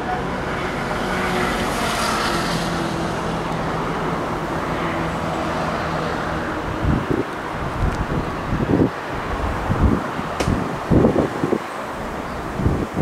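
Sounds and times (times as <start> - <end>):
road traffic noise: 0.0 - 13.0
wind buffeting microphone: 2.4 - 13.0.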